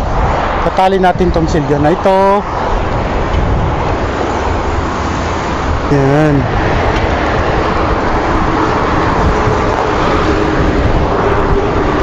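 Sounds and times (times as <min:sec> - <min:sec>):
road traffic noise: 0:00.0 - 0:12.0
wind rushing across microphone: 0:00.0 - 0:12.0.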